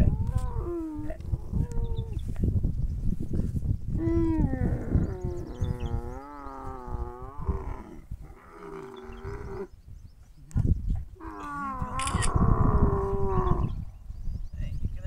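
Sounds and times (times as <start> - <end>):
camel calling: 4.0 - 9.7, 11.2 - 13.8.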